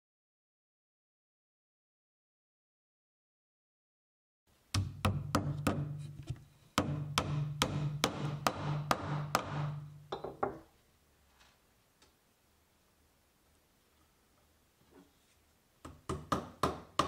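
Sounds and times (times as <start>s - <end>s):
hammer tapping tacks into wood: 6.8s - 10.3s, 15.8s - 17.0s.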